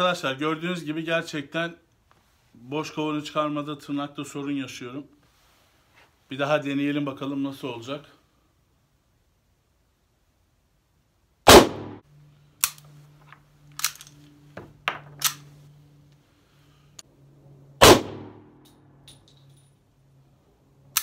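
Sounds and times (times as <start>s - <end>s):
loud pistol shots: 11.5s - 12.0s, 17.8s - 18.5s.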